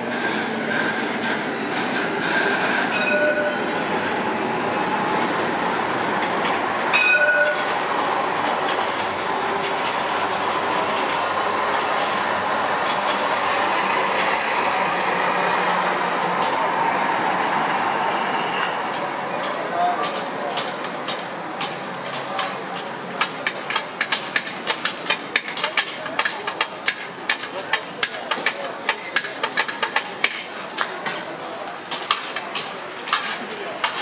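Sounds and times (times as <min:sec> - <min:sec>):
tram wheels rolling on rails: 0:00.0 - 0:34.0
short ringing tone: 0:03.0 - 0:03.6.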